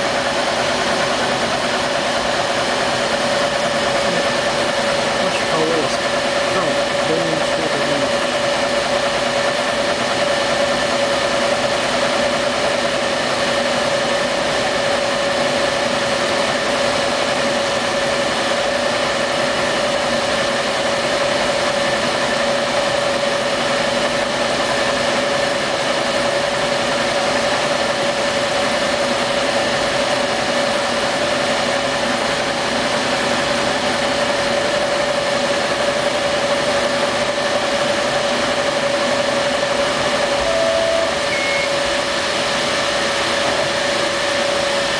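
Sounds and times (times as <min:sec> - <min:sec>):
laser engraver humming: 0:39.4 - 0:44.9.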